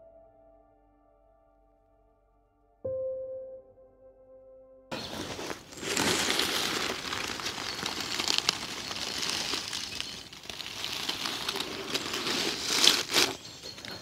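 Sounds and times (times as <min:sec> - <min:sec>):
leaf litter rustling and crackling: 0:04.9 - 0:14.0
small wood snaps and crunches: 0:05.3 - 0:14.0.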